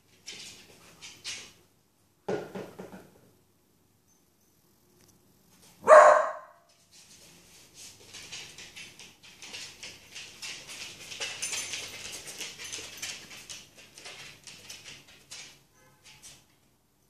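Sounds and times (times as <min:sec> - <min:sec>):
dog claws clicking on wooden floor: 0:07.9 - 0:16.7.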